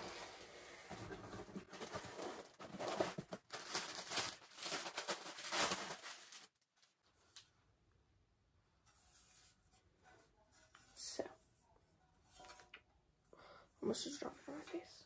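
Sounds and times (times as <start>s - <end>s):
small objects rustling and clattering: 0.0s - 7.0s.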